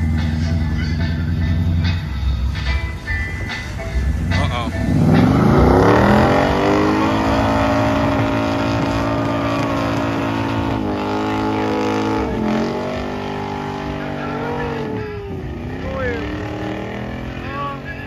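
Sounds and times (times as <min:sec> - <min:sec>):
car engine revving hard: 0:04.0 - 0:18.0.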